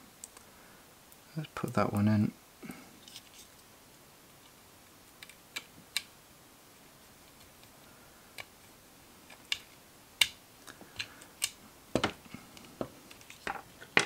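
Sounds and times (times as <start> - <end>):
handling clicks and knocks: 11.9 - 14.0.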